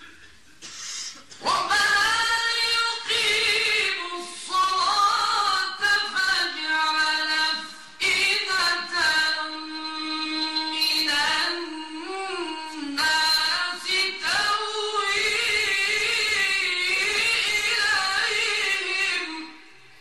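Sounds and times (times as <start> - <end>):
man chanting recitation: 1.4 - 19.6.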